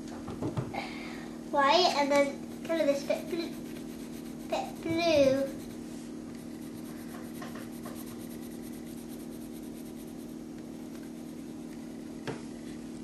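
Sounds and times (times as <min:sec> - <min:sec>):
steady low hum: 0:00.0 - 0:13.0
coloured pencil rubbing on paper: 0:02.5 - 0:11.8.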